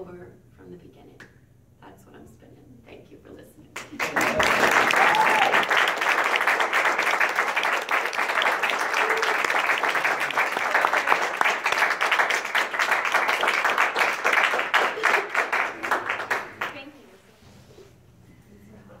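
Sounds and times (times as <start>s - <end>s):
audience applauding: 3.8s - 16.8s.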